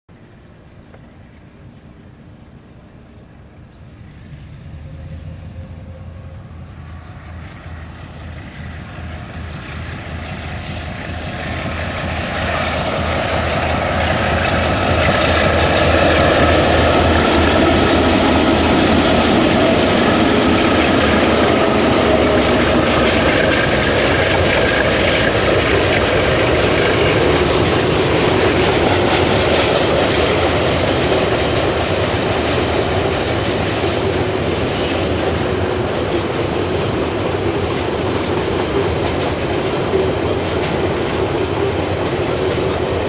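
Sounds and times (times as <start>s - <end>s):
diesel locomotive engines droning: 0.1s - 43.0s.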